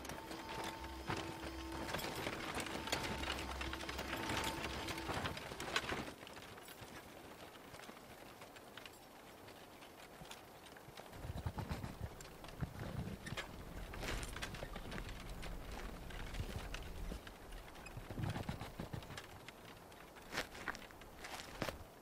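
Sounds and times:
steady drone: 0.0s - 6.0s
wagon rattling: 0.0s - 21.7s
horse hooves clip-clopping: 0.0s - 22.0s.

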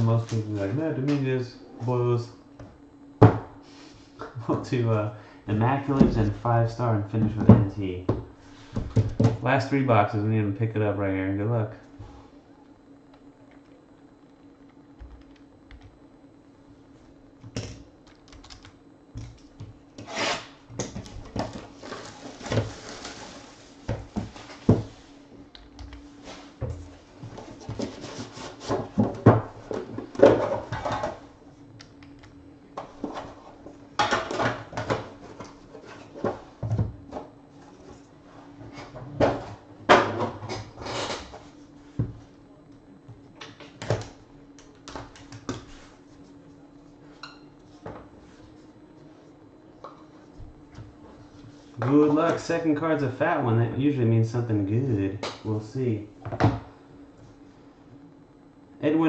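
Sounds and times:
cardboard rubbing and scraping: 20.0s - 20.6s.

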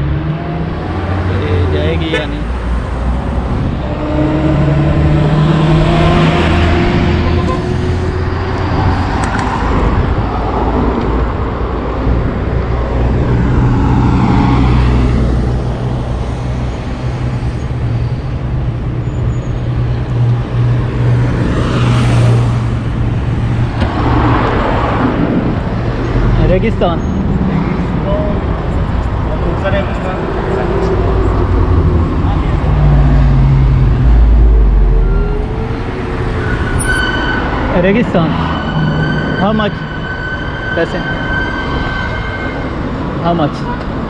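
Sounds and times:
cars driving past: 0.0s - 44.0s.

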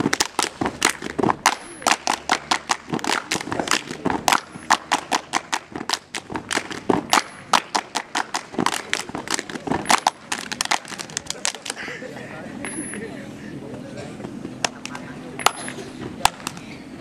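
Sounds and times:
hand claps in rhythm: 0.0s - 11.8s.

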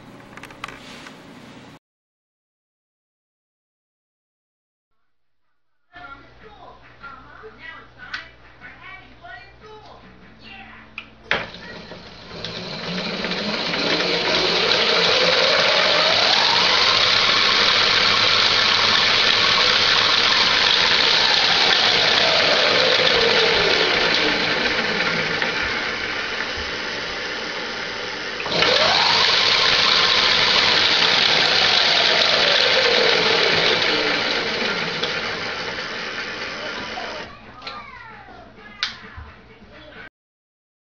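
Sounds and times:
electric motor whining: 11.4s - 37.3s.

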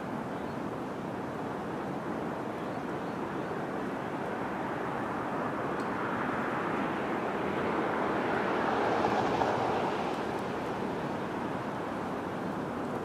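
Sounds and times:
distant vehicle engine passing: 7.7s - 10.8s.

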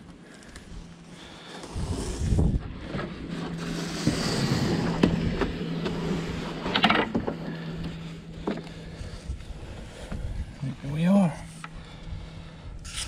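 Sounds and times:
steady low hum: 0.0s - 13.0s
cardboard scraping and rustling: 1.5s - 7.6s.

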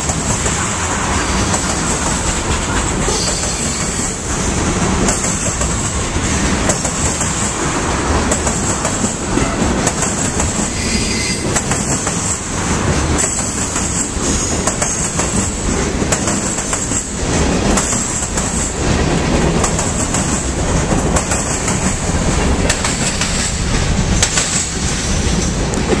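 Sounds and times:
wheels clattering over rails: 11.4s - 26.0s.

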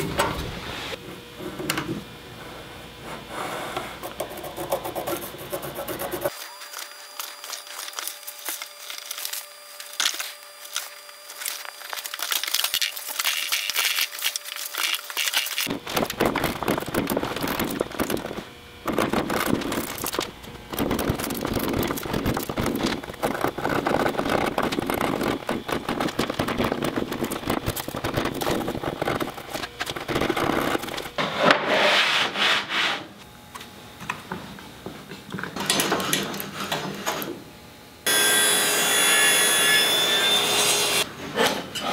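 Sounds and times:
wood cracking: 7.3s - 31.2s.

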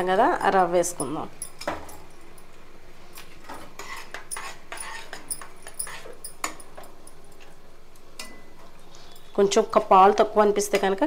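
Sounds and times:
metal spoon scraping a pan: 3.5s - 6.6s.

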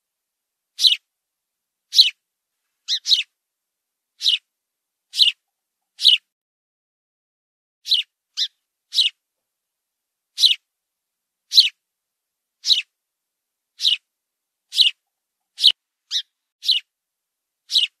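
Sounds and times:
sparrow cheeps: 0.8s - 1.0s, 1.9s - 2.2s, 2.9s - 3.3s, 4.2s - 4.4s, 5.1s - 5.4s, 6.0s - 6.2s, 7.9s - 9.2s, 10.4s - 10.6s, 11.5s - 11.8s, 12.6s - 12.9s, 13.8s - 14.0s, 14.7s - 15.0s, 15.6s - 16.8s, 17.7s - 18.0s.

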